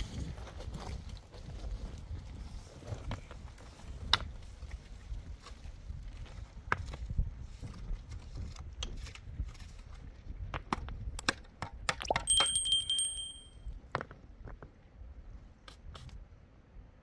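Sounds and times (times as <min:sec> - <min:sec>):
clinks and knocks of objects: 0:12.0 - 0:13.5
bright ringing note: 0:12.2 - 0:13.6.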